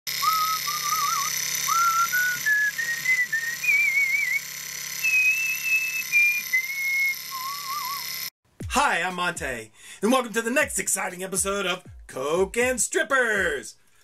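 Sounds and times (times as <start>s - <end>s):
person whistling a tune: 0.1s - 8.2s.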